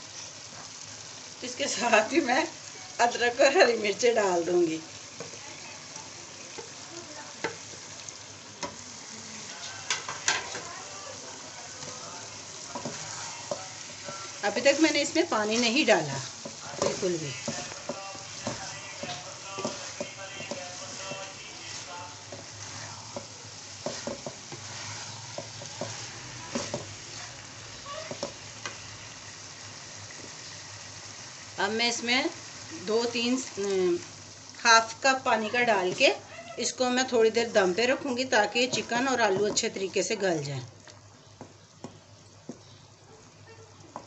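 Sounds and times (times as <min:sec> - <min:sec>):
food sizzling in a wok: 0:00.0 - 0:44.0
spatula knocking and scraping pan: 0:07.4 - 0:07.9, 0:09.8 - 0:10.7, 0:12.7 - 0:28.8, 0:37.8 - 0:39.9.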